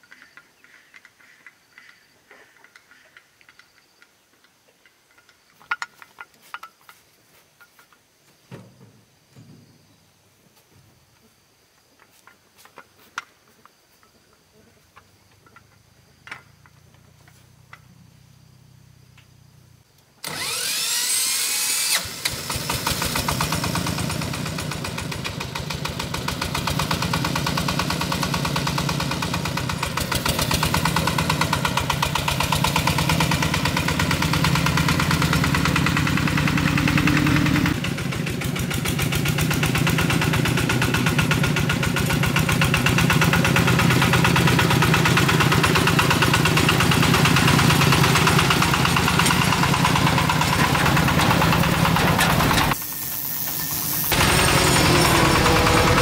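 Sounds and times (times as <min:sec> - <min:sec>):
diesel engine chugging: 0:22.0 - 0:56.0.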